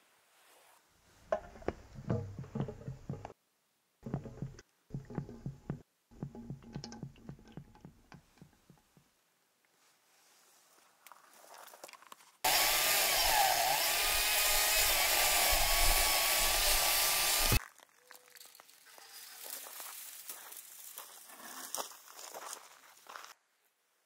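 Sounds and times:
electric chainsaw cutting wood: 12.5s - 17.6s
branches rustling and crackling: 17.6s - 23.3s.

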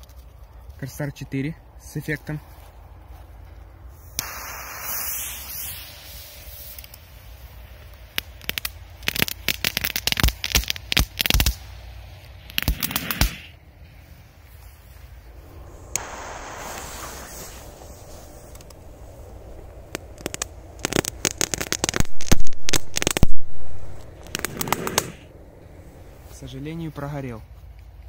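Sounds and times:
fuse hissing: 4.0s - 8.3s, 15.2s - 26.7s
firecracker crackling: 4.0s - 13.5s, 14.8s - 26.7s.

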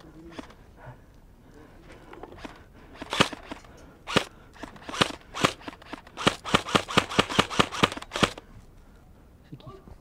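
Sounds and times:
airsoft gun shots: 2.4s - 8.4s.

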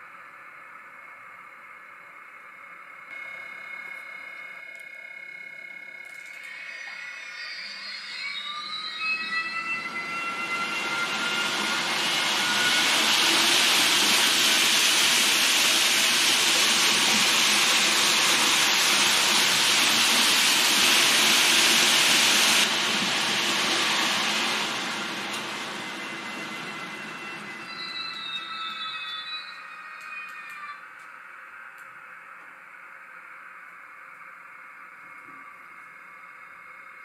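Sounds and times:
model train whining tones: 0.8s - 37.0s
model train rushing hiss: 10.1s - 28.4s.

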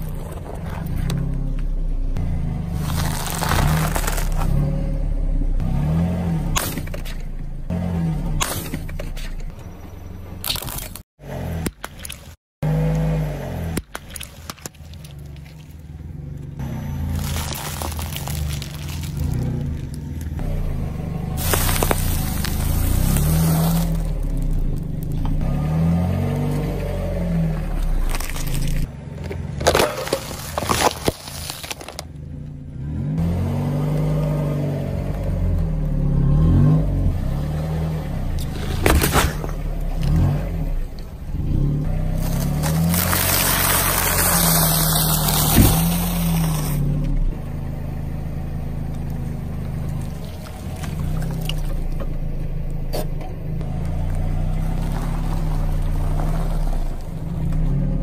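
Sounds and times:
car engine running low: 0.0s - 11.7s, 14.7s - 58.0s
tyre crushing snacks: 2.8s - 4.6s, 10.4s - 11.0s, 17.1s - 20.4s, 21.4s - 25.3s, 29.6s - 32.1s, 38.6s - 40.2s, 42.1s - 46.8s.

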